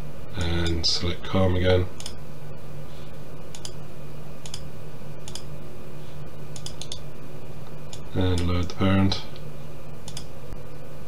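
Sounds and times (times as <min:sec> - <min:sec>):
low electrical hum: 0:00.0 - 0:11.0
computer mouse clicks: 0:03.5 - 0:03.8, 0:04.4 - 0:04.6, 0:05.2 - 0:05.5, 0:06.5 - 0:07.0, 0:10.0 - 0:10.3.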